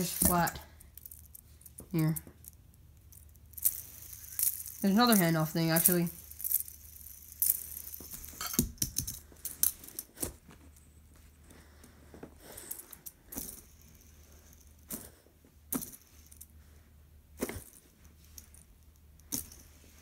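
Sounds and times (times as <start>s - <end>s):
plastic toys clicking and rattling: 0.0s - 10.3s.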